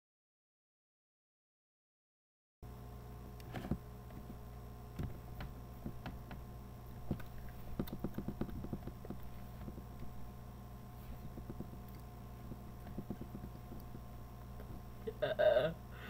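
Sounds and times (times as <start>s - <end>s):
electrical hum: 2.6s - 16.0s
hands tapping and brushing: 7.0s - 10.2s, 11.0s - 14.9s.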